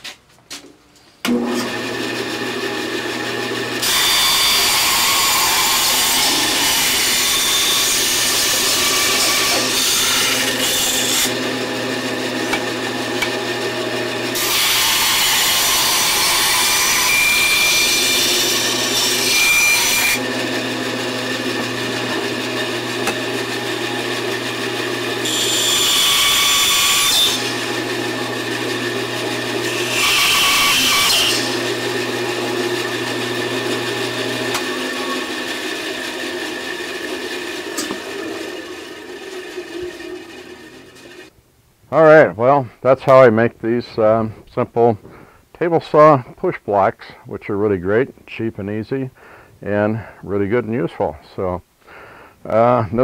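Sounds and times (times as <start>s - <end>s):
saw blade cutting wood: 1.2s - 41.3s
bandsaw motor hum: 1.3s - 41.3s.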